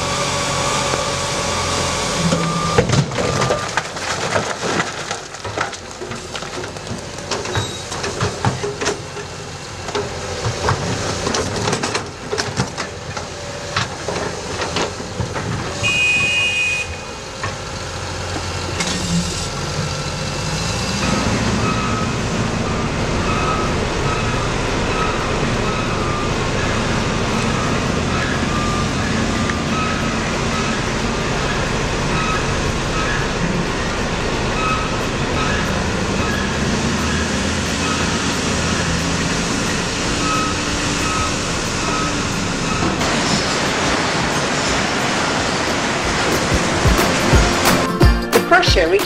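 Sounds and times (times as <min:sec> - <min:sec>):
diesel engine running: 0:00.0 - 0:49.0
reversing alarm beeping: 0:00.5 - 0:03.8, 0:15.8 - 0:17.1, 0:21.0 - 0:43.0
rocks clattering into truck body: 0:02.8 - 0:09.2.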